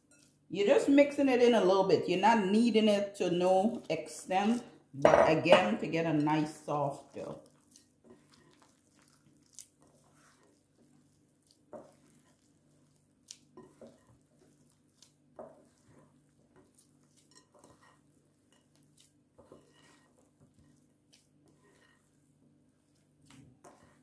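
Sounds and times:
hands kneading dough: 0:03.4 - 0:24.0.

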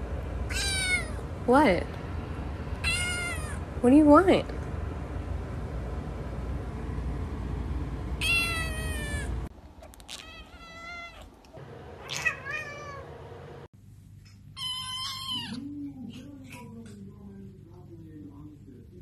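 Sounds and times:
kittens meowing: 0:00.5 - 0:01.2, 0:02.8 - 0:03.6, 0:08.2 - 0:13.1, 0:14.6 - 0:15.6.

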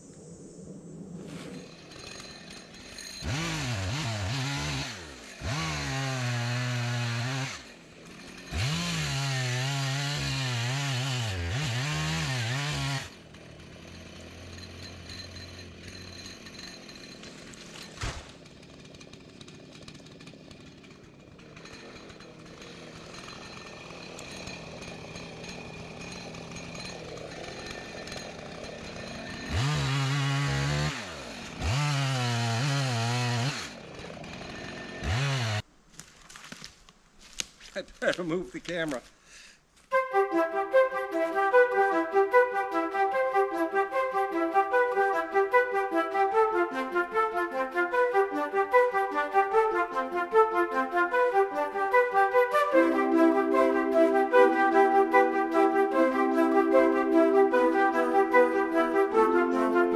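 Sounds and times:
chainsaw revving and idling: 0:01.6 - 0:35.7, 0:52.8 - 0:59.9.

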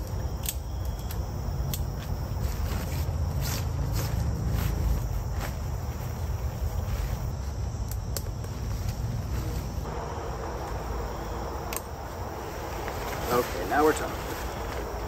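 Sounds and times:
insects chirring: 0:00.0 - 0:15.0
tent fabric rustling: 0:02.0 - 0:07.6, 0:12.1 - 0:15.0.

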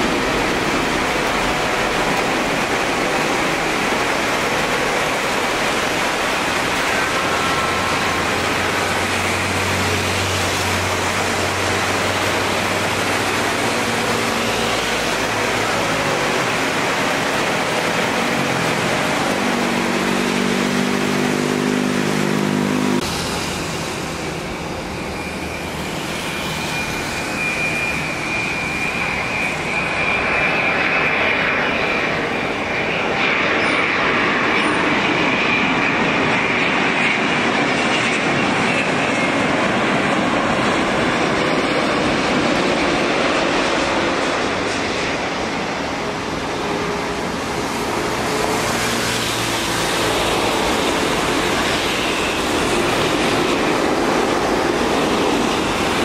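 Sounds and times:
rain: 0:00.0 - 0:24.9, 0:45.7 - 0:56.0
jet engines at takeoff power: 0:00.0 - 0:56.0
jet engines whining on approach: 0:00.0 - 0:56.0.

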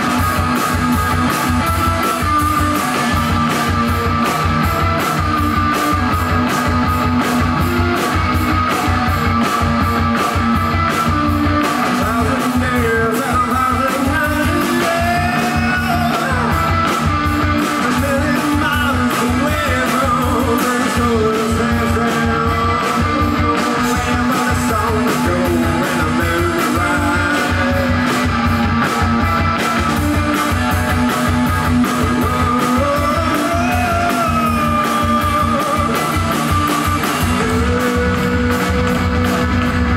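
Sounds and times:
drum kit steady beat: 0:00.0 - 0:39.9
electric guitar: 0:00.0 - 0:39.9
man singing: 0:11.8 - 0:16.9, 0:17.6 - 0:28.4, 0:32.0 - 0:38.9.

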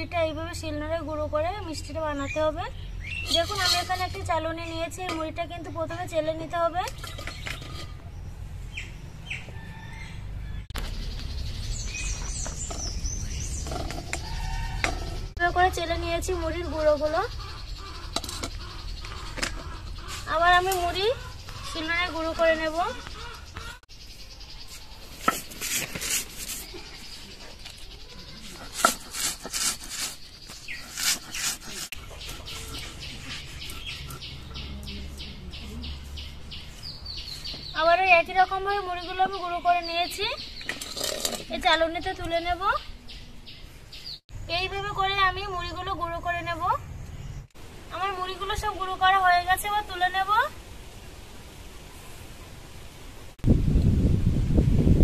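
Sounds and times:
small birds chirping: 0:00.0 - 0:50.4
stone roller grinding on stone: 0:03.2 - 0:04.3, 0:07.0 - 0:08.1, 0:12.6 - 0:15.4, 0:28.4 - 0:34.2, 0:40.6 - 0:41.6.

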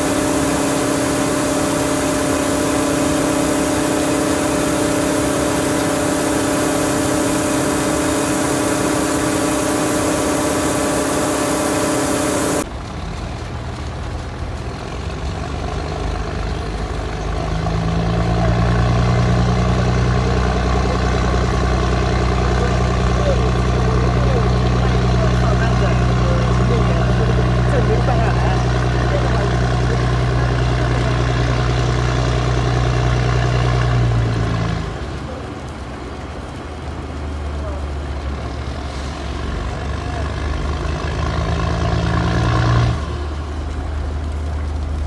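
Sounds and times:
machine hum: 0:00.0 - 0:12.7
diesel engine running: 0:00.0 - 0:45.0
gravel pouring: 0:00.0 - 0:45.0.

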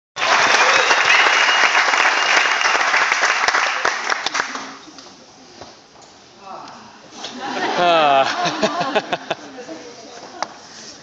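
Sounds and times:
audience applauding: 0:00.2 - 0:04.8.

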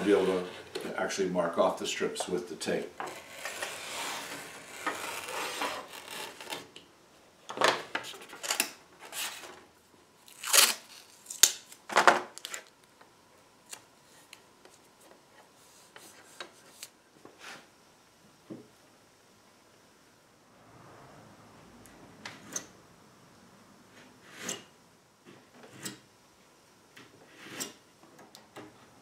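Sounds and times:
utility knife scoring veneer: 0:03.0 - 0:06.7
tape tearing off roll: 0:03.0 - 0:06.8, 0:10.2 - 0:12.7.

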